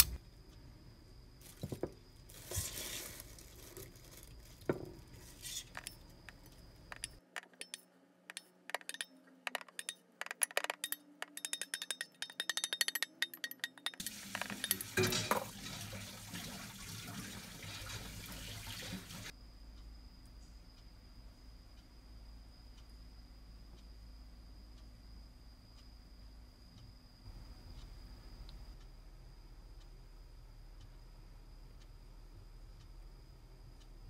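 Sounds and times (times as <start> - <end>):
utensil clinking and scraping bowl: 5.2 - 16.5.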